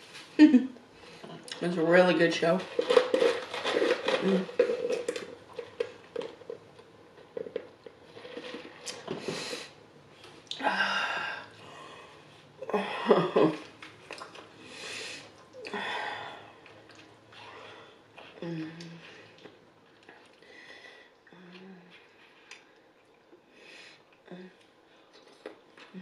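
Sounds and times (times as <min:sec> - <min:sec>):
noisy breaths: 0:09.1 - 0:12.6, 0:14.6 - 0:16.6, 0:20.4 - 0:21.4.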